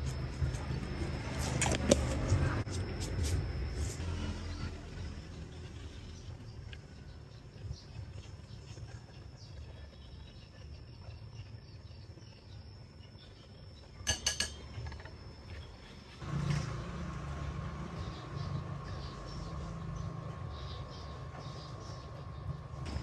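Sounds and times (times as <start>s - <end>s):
utensil clinking against bowl: 14.0s - 15.0s
low outdoor rumble: 14.5s - 23.0s.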